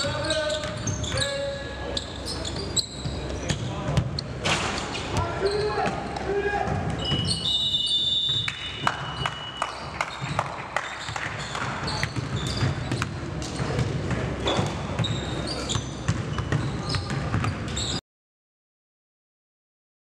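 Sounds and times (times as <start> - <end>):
sneaker squeaks: 0.0 - 18.0
basketball bouncing on hardwood floor: 11.1 - 17.6.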